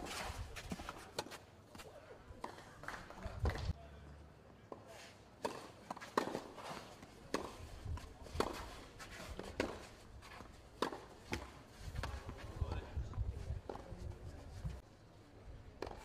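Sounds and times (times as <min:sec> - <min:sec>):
racket striking tennis ball: 0:05.4 - 0:12.3
tennis ball bouncing: 0:10.8 - 0:12.3.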